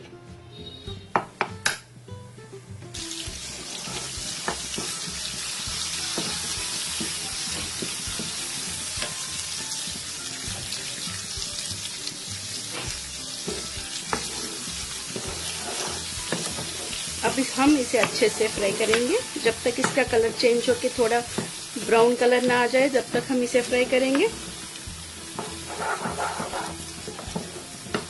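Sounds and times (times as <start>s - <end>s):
paste sizzling in oil: 3.0s - 28.0s
spoon scraping pan: 12.7s - 20.7s, 21.3s - 28.0s.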